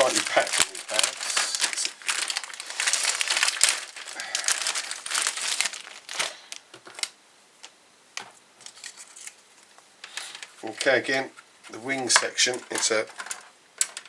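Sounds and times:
plastic bag crinkling: 0.0s - 7.2s, 10.0s - 14.0s.

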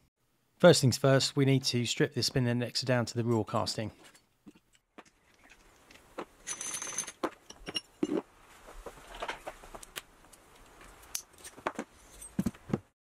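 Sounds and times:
metal parts clinking and tapping: 5.4s - 8.2s.

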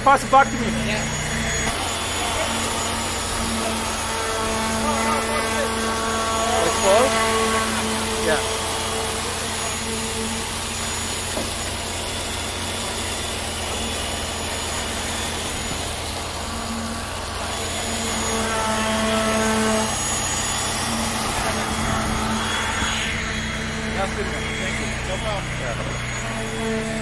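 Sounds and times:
pump truck engine drone: 0.0s - 27.0s.

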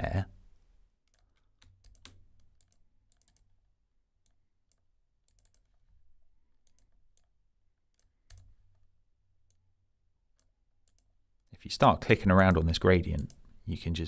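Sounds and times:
computer mouse clicking: 1.0s - 3.5s, 4.2s - 5.9s, 6.6s - 7.3s, 10.3s - 11.1s.

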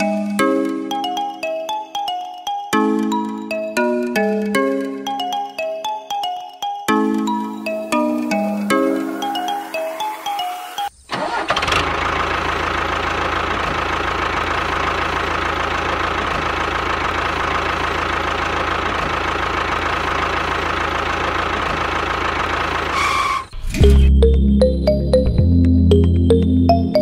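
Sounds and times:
toy tractor motor running: 11.1s - 23.5s.

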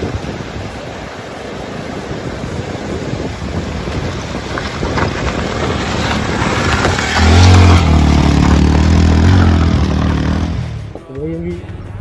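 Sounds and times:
rushing water: 0.0s - 11.0s
wind: 0.0s - 12.0s
motorcycle engine pulling hard: 4.0s - 10.7s.

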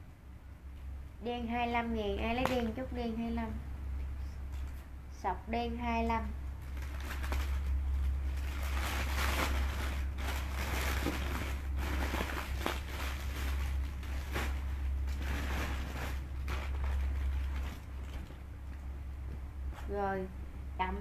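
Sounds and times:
steady low hum: 0.0s - 21.0s
clothes rustling: 6.8s - 18.8s.

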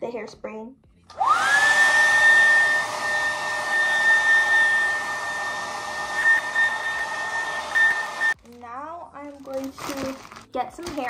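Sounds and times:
hair dryer air rushing: 1.1s - 8.4s
hair dryer motor whine: 1.1s - 8.4s.

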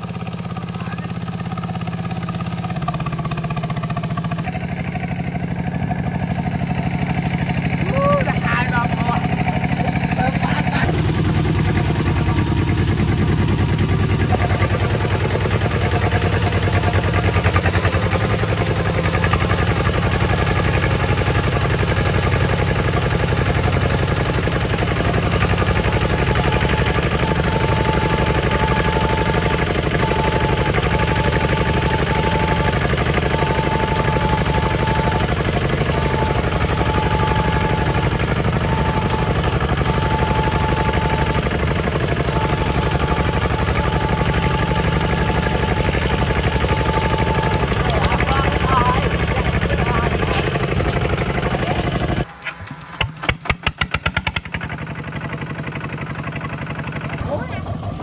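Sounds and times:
tractor diesel engine chugging: 0.0s - 58.0s.

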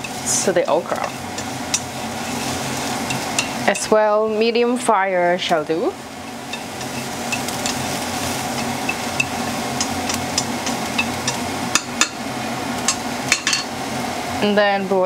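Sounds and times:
chopsticks tapping pan: 0.0s - 4.0s, 6.2s - 12.2s, 12.8s - 13.7s
food sizzling in hot oil: 0.0s - 15.0s.

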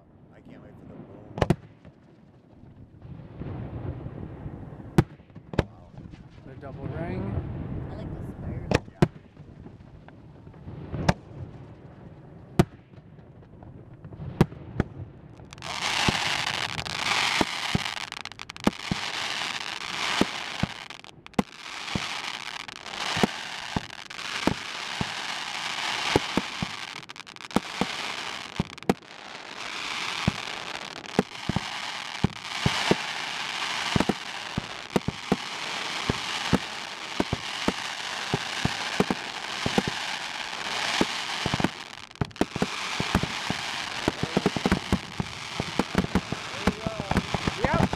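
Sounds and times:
fireworks bursting: 0.0s - 47.9s
fireworks crackling overhead: 0.0s - 47.9s.

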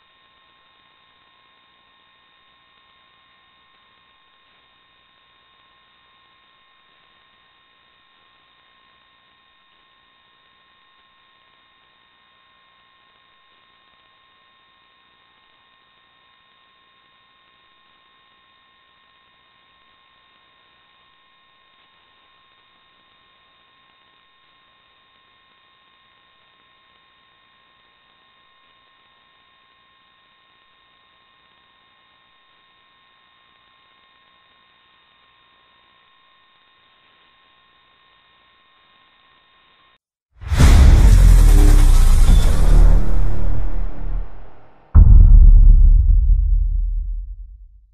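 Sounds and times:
high steady whine tones: 40.5s - 47.8s.

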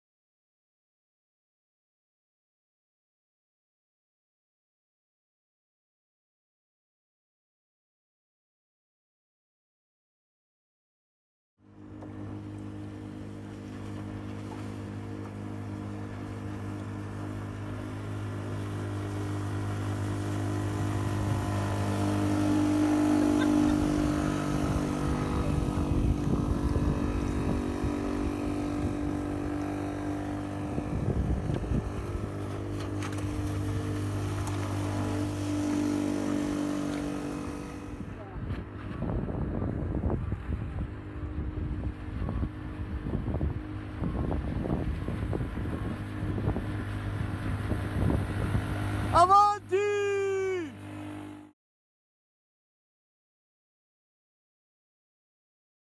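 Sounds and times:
outboard motor humming: 11.6s - 51.6s.

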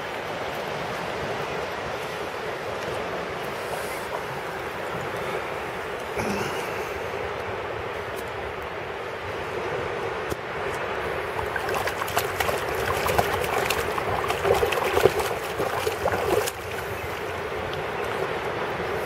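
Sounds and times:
dog splashing in shallow water: 11.4s - 18.2s.

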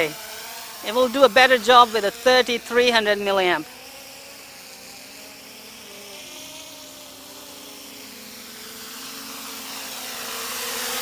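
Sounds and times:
quadcopter propellers whining: 0.0s - 11.0s.

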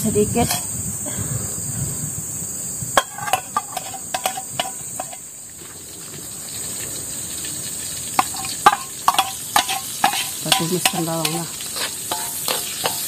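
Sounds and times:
high drone of insects: 0.0s - 13.0s
metal utensil scraping in a wok: 0.4s - 0.7s, 3.0s - 5.3s, 7.7s - 13.0s.

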